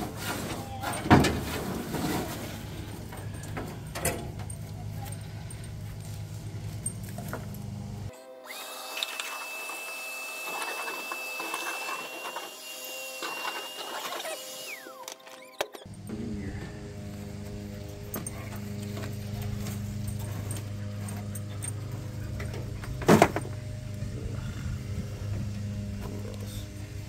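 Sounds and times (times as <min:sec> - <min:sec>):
shop vacuum running: 0:00.0 - 0:27.0
high whine: 0:15.9 - 0:27.0.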